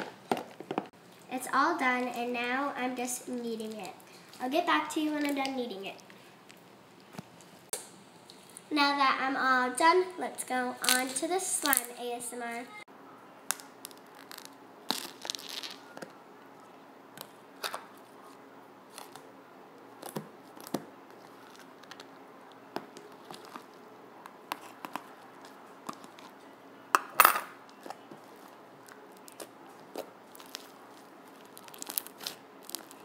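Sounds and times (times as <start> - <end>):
slime clicks and crackles: 13.5 - 15.9, 28.8 - 33.0
slime squelching: 22.8 - 26.4, 27.7 - 33.0.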